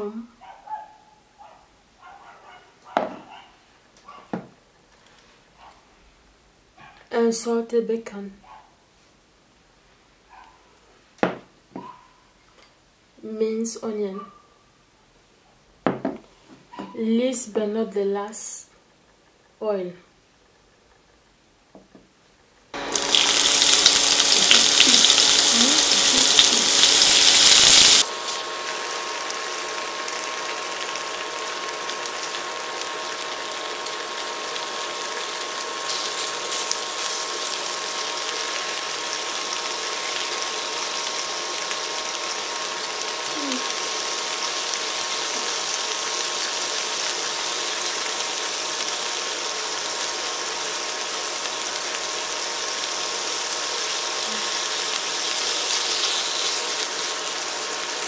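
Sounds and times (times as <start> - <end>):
onion and bacon sizzling in oil: 22.8 - 58.0.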